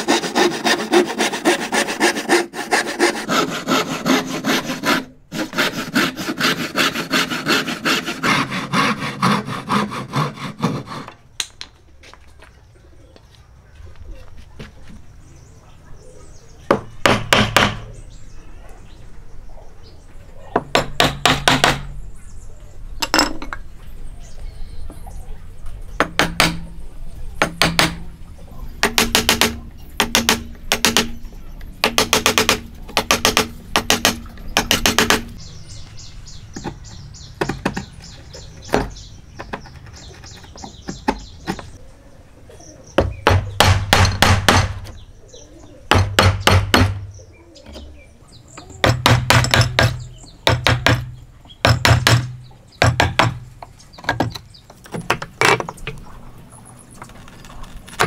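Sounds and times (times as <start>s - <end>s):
chisel being struck: 26.0s - 26.6s, 28.8s - 31.2s, 31.8s - 35.3s, 45.9s - 47.1s.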